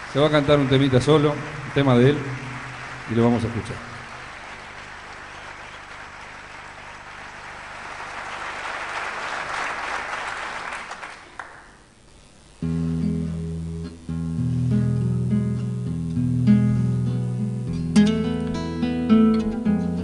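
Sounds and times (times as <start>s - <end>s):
audience applauding: 0.0s - 11.9s
acoustic guitar chords: 12.6s - 20.0s.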